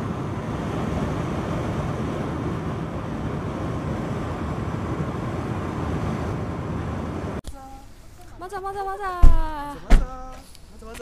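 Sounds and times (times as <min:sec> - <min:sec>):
road and wind noise in car: 0:00.0 - 0:07.4.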